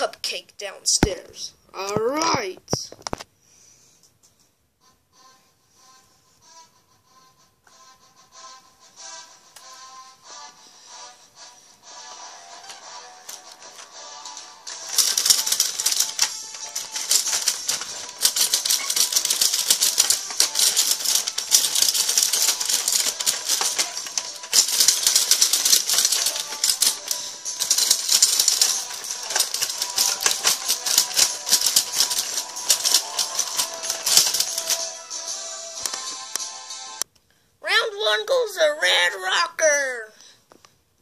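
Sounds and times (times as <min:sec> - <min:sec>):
rapid plastic clacks: 0:14.7 - 0:35.0.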